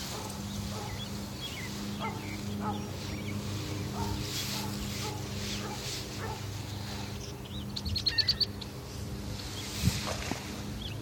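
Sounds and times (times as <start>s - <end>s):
steady low hum: 0.0s - 11.0s
bird chirping: 0.4s - 4.2s, 5.6s - 8.8s.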